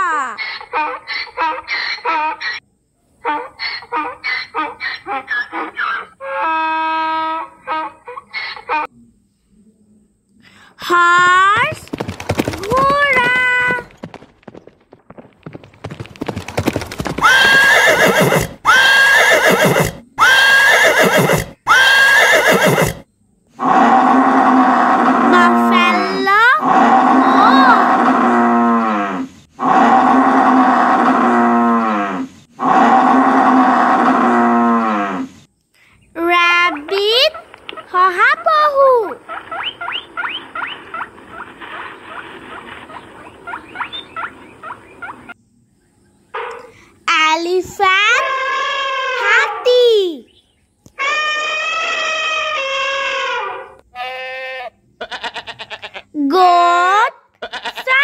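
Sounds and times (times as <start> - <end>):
horse hooves clip-clopping: 11.0 - 18.2
horse neighing: 16.2 - 35.3.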